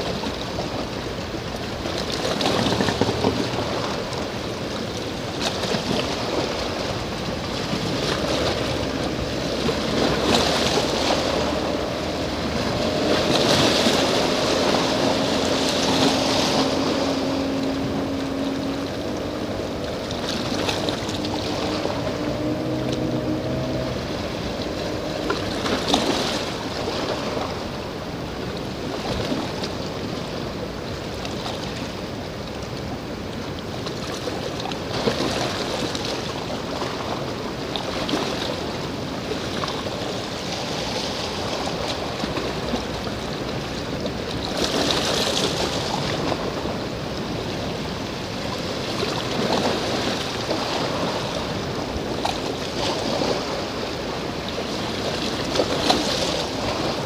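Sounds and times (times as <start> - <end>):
sea surf washing on shore: 0.0 - 57.0.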